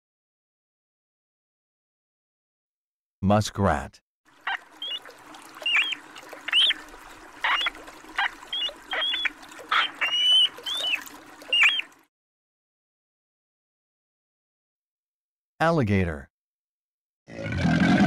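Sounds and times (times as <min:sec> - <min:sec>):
muskrat squeaking: 0:04.5 - 0:11.9.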